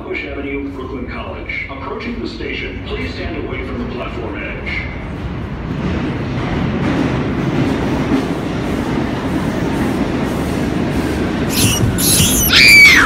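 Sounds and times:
subway train rumbling: 0.0 - 13.0
high brake squeal: 11.5 - 13.0.

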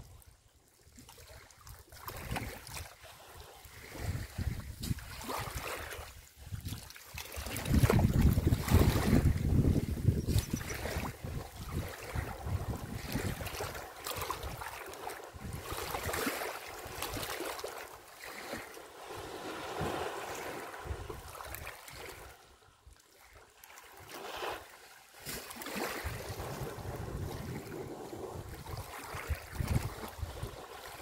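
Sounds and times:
wind buffeting microphone: 3.8 - 5.2, 7.4 - 17.3, 19.1 - 22.4, 25.9 - 30.9
elephants splashing in water: 10.3 - 22.3, 23.4 - 31.0.

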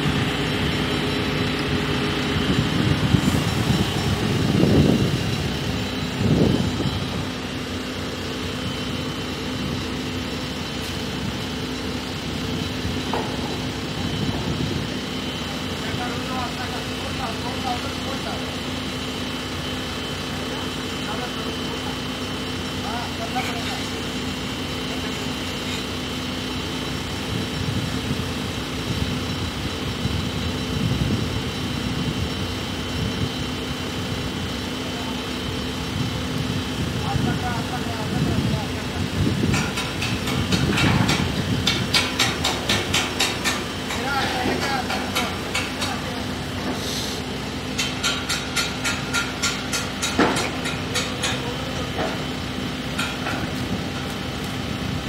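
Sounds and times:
crane engine rumbling: 0.0 - 55.0
metallic taps on steel: 47.8 - 51.4.

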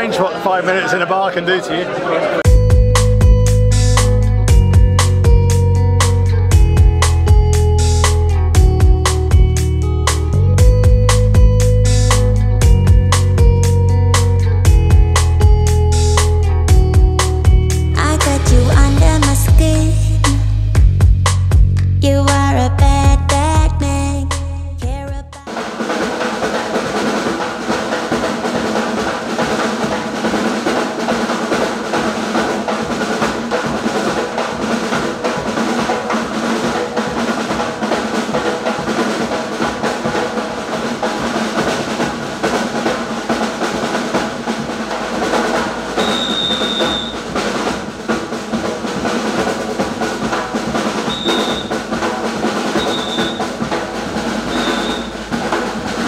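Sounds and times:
snare and bass drums: 2.5 - 56.0
high whistle blasts: 46.0 - 47.3, 51.0 - 51.8, 52.8 - 53.6, 54.5 - 55.2.

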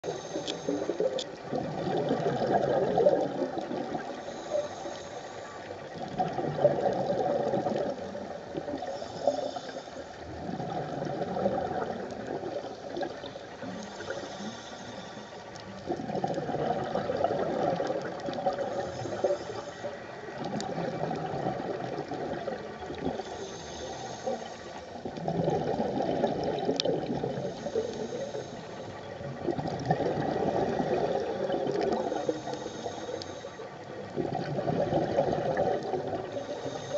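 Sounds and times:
regulator inhale hiss: 0.0 - 1.4, 3.8 - 6.0, 8.5 - 10.4, 12.6 - 15.9, 18.5 - 20.4, 23.0 - 25.1, 27.4 - 29.2, 31.9 - 34.1, 36.2 - 36.9
exhaled air bubbling: 0.0 - 36.9.

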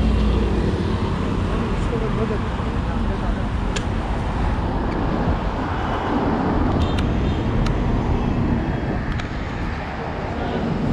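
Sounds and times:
road and wind noise: 0.0 - 10.9.

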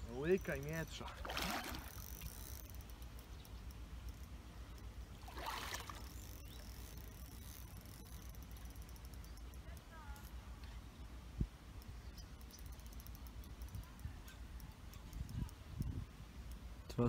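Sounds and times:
water splashing: 0.7 - 2.6, 5.2 - 6.3.

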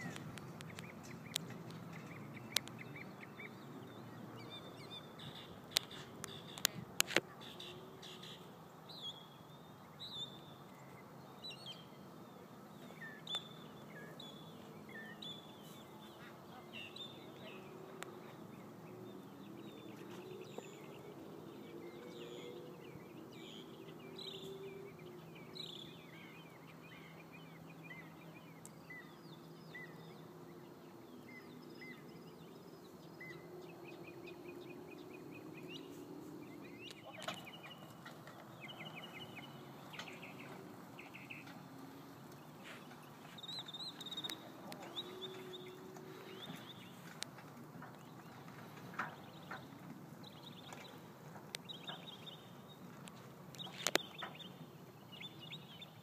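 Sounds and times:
bird chirps and calls: 0.0 - 52.9
low background noise: 0.0 - 56.0.

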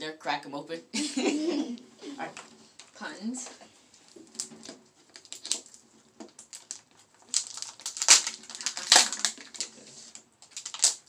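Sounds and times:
foil wrappers crinkling and tearing: 4.3 - 11.0.

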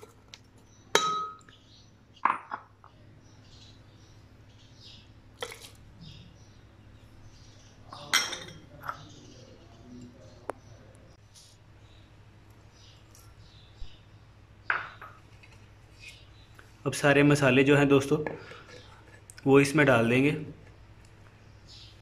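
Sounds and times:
glass bowls knocking on glass: 1.0 - 1.4.

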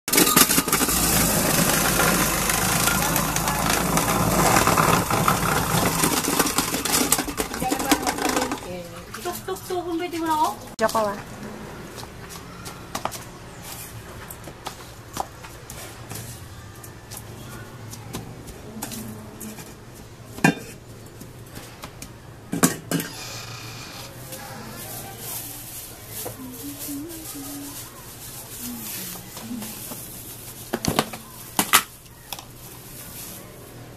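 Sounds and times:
ice grinding and crackling: 0.1 - 8.7
electric ice shaver motor hum: 0.6 - 7.3.

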